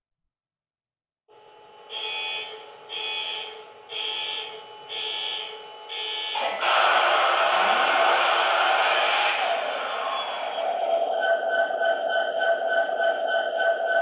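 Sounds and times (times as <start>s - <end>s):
diesel engine running: 6.4s - 14.0s
ringing tone: 10.8s - 14.0s.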